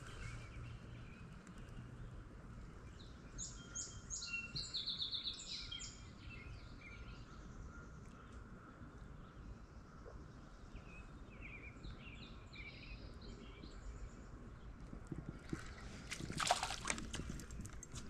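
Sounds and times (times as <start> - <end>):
fish splashing in water: 15.3 - 18.0.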